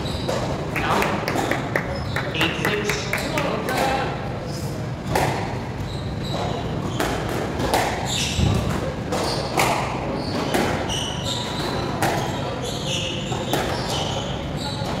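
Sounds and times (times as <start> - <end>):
squash ball struck by rackets: 5.0 - 5.6, 6.9 - 10.9, 11.9 - 12.4, 13.4 - 14.0
shoes squeaking on wooden floor: 5.8 - 7.1, 8.1 - 9.6, 10.2 - 15.0.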